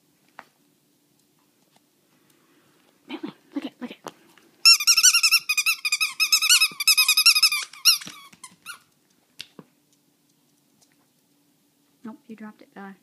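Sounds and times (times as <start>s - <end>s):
dog toy squeaking: 4.6s - 8.9s.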